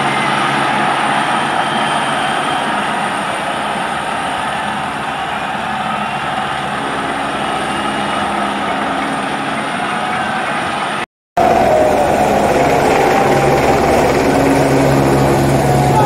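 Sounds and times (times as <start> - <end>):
helicopter flying overhead: 0.0 - 16.0.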